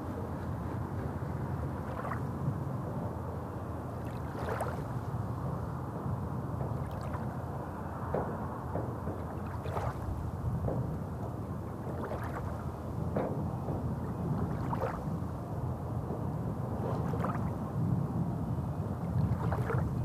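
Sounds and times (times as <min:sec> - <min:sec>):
small waves lapping on pebbles: 0:12.0 - 0:12.5, 0:14.5 - 0:15.0.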